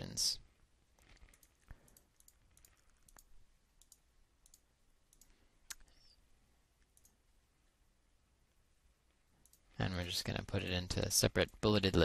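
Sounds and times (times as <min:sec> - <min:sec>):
computer mouse clicks: 0:01.0 - 0:06.1, 0:06.8 - 0:07.2, 0:09.4 - 0:09.7.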